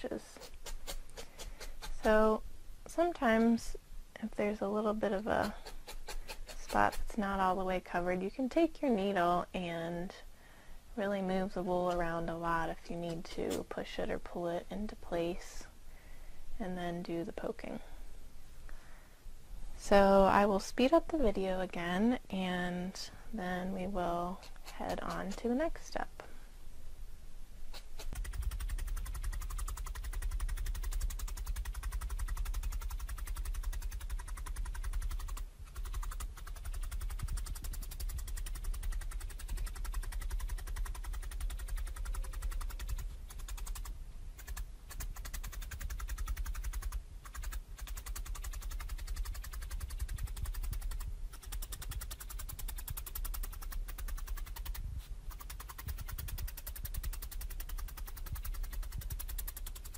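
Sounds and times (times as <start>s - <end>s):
felting needle poking into foam: 0.3s - 2.2s, 5.1s - 7.3s, 24.4s - 25.5s, 27.7s - 59.9s.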